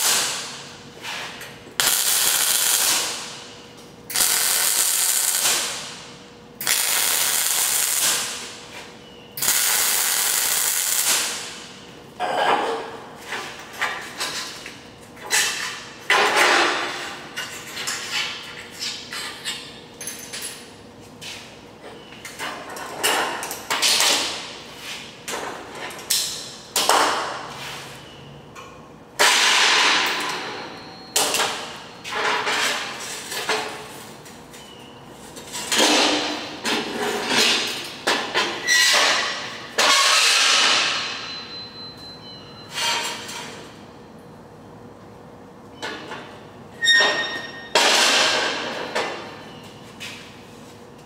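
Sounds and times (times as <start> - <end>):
metal clanks and scrapes: 12.2 - 20.4, 29.2 - 33.9, 35.4 - 41.6, 42.6 - 43.7.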